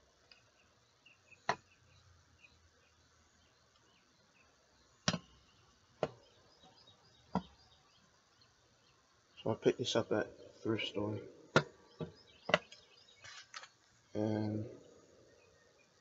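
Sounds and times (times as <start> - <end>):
faint chirping: 0.0 - 16.0.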